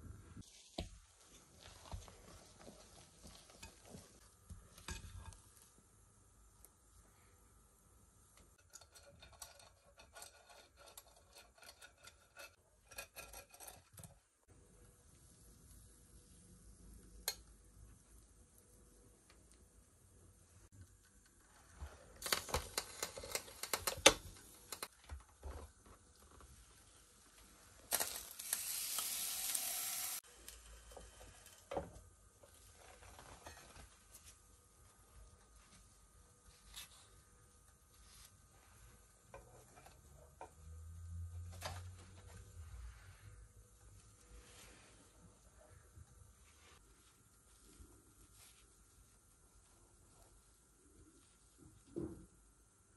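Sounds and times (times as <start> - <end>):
waffles sizzling and hissing: 0.0 - 7.4, 14.4 - 24.9, 26.4 - 34.4, 42.2 - 51.8
pastry brush scratching a waffle iron: 8.6 - 14.2.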